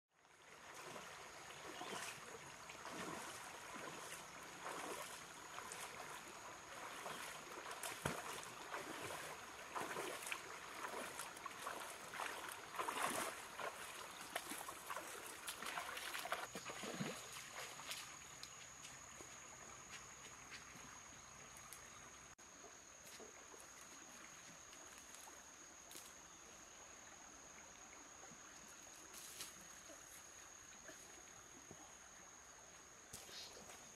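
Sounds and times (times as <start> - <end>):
flowing water: 0.1 - 33.9
water splashing from wading: 0.4 - 18.3.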